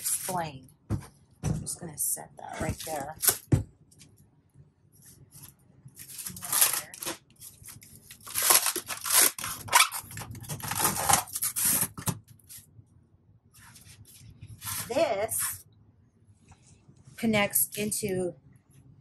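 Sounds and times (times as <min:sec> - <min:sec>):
plastic wrap rustling and tearing: 0:02.7 - 0:03.5, 0:05.2 - 0:12.7, 0:13.6 - 0:15.4
foam packing scraping: 0:06.0 - 0:12.6.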